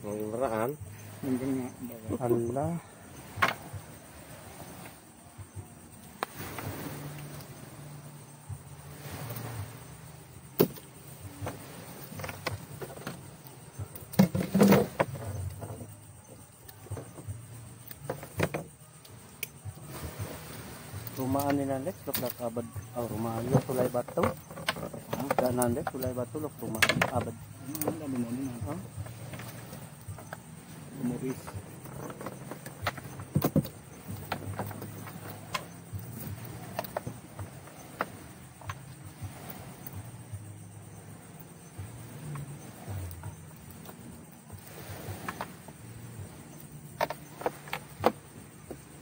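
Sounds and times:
knocks and slaps in fish hold: 10.5s - 13.2s, 47.0s - 48.8s.

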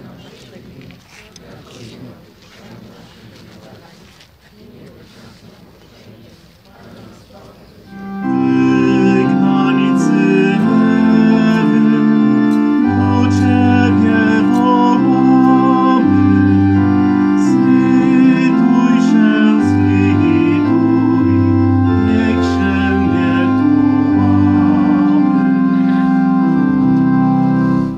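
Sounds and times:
organ playing held chords: 7.9s - 27.9s.

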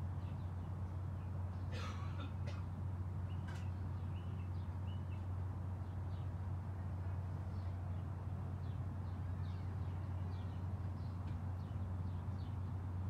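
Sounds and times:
small birds chirping: 0.0s - 1.9s, 2.6s - 13.0s.

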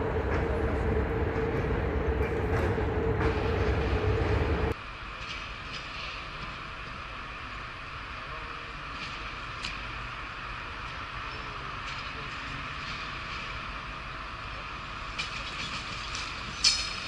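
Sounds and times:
train running noise: 0.0s - 17.0s
wheels clicking over rail joints: 10.8s - 17.0s.

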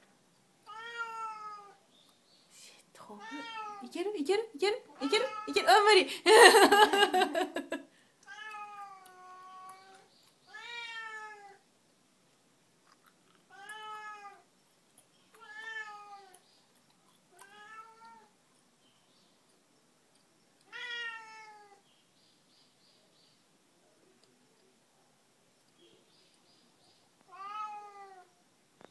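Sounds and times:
cat meowing: 0.7s - 1.8s, 3.2s - 3.9s, 5.0s - 5.7s, 8.3s - 11.6s, 13.5s - 14.4s, 15.4s - 16.4s, 17.4s - 18.3s, 20.7s - 21.8s, 27.3s - 28.3s.

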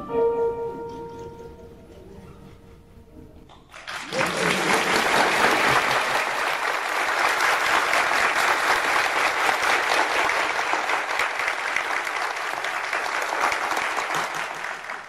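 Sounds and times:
crowd applauding: 3.7s - 15.0s.

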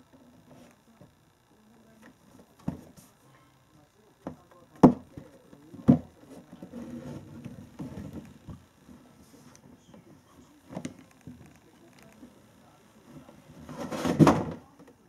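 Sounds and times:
cat scuffling in box: 13.5s - 14.5s.

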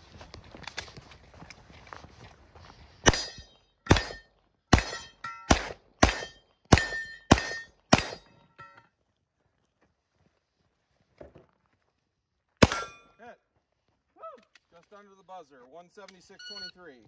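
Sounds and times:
pistol shots: 3.0s - 8.4s, 12.6s - 13.0s
steel target ringing: 3.1s - 8.8s, 12.6s - 13.2s.

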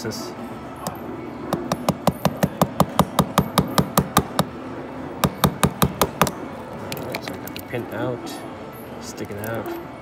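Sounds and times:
hammer tapping metal punch: 1.5s - 4.5s, 5.2s - 6.4s.

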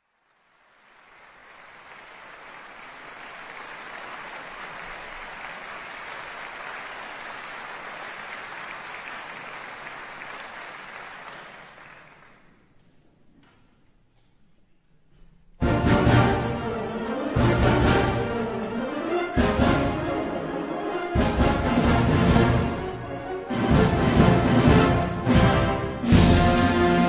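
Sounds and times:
audience applauding: 0.0s - 12.8s.

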